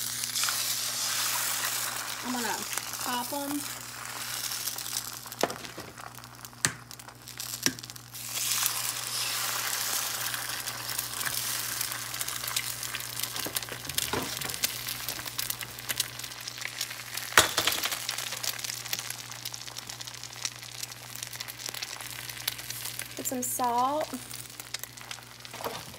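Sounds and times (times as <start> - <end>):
eggs sizzling in a skillet: 0.0 - 25.9
egg cracking taps: 6.6 - 8.0.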